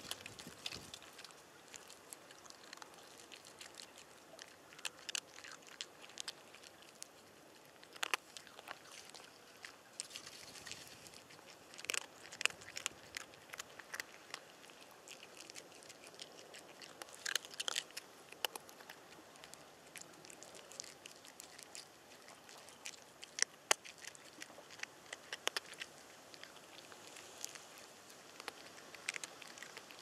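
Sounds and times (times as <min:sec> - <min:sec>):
cat crunching food: 0:00.0 - 0:30.0
faint background hiss: 0:00.0 - 0:30.0.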